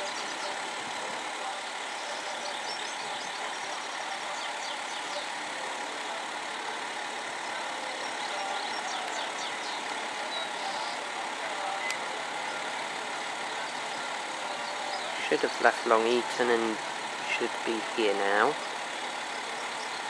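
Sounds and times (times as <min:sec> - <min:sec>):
distant vehicles: 0:00.0 - 0:20.0
faint high chirps: 0:07.4 - 0:11.1.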